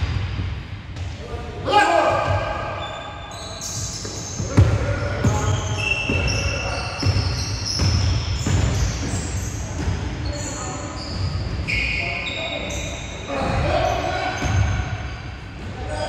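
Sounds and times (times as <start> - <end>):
sneakers squeaking on floor: 1.9 - 16.0.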